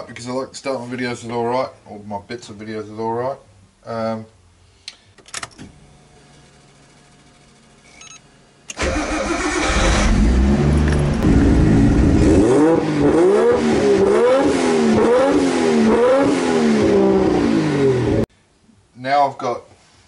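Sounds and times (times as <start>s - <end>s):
car engine revving: 8.8s - 18.3s.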